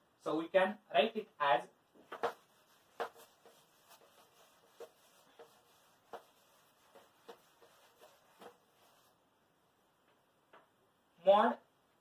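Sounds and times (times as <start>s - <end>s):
chalkboard eraser wiping blackboard: 2.0s - 9.2s.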